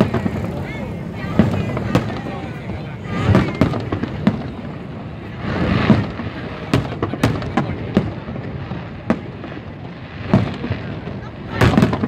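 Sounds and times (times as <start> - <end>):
fireworks bangs: 0.0 - 12.0
fireworks boom: 0.0 - 12.0.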